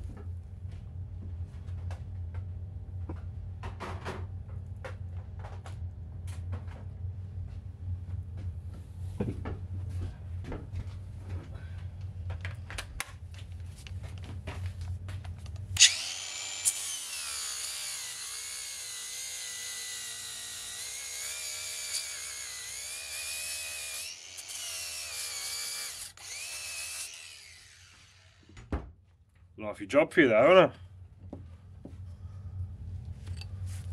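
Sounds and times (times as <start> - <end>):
low hum: 0.0 - 18.9, 30.7 - 33.9
angle grinder grinding metal: 15.8 - 28.5.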